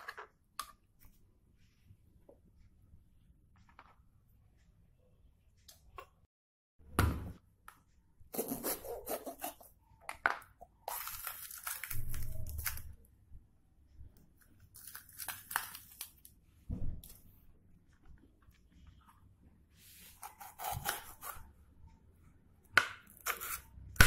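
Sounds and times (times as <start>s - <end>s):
pepper tearing and snapping: 10.9s - 12.9s, 14.8s - 16.3s.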